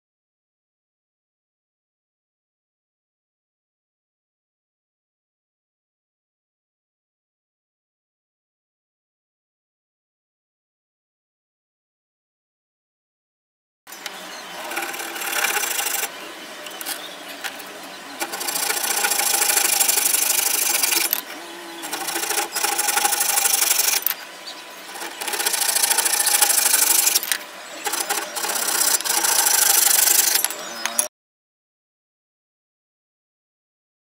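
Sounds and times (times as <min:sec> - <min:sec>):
handsaw cutting wood: 0:14.5 - 0:24.2, 0:24.8 - 0:31.1.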